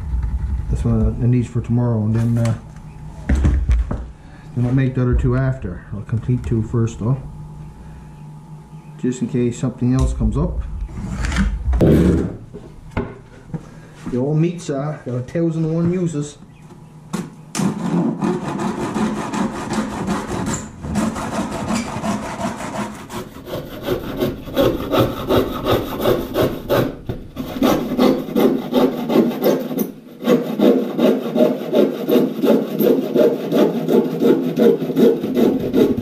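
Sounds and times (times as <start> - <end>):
hand saw cutting wood: 17.6 - 36.0.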